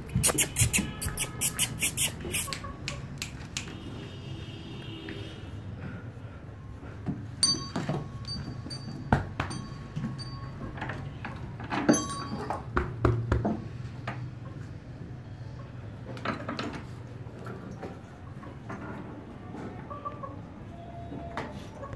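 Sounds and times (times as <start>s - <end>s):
small metal bell clinking: 7.4s - 11.0s, 11.9s - 12.7s.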